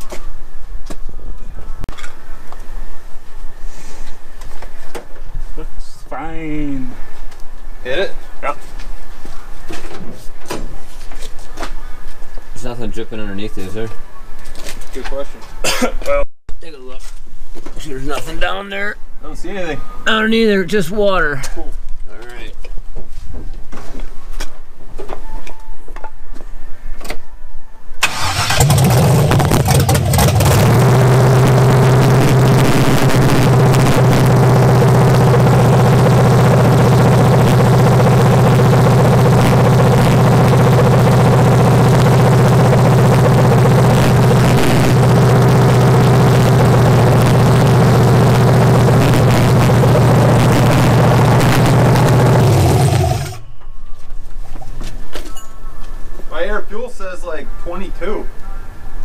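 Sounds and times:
engine starting and idling: 28.0s - 53.5s.

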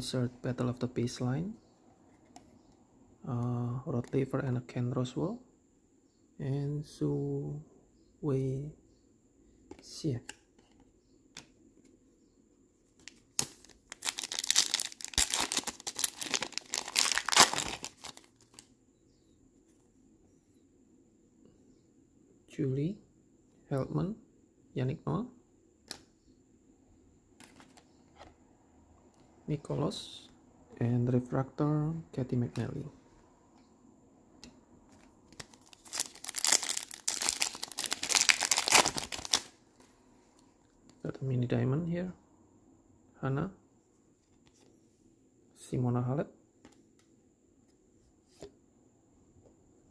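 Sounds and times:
wrapper crinkling: 13.1s - 18.7s, 35.3s - 39.6s.

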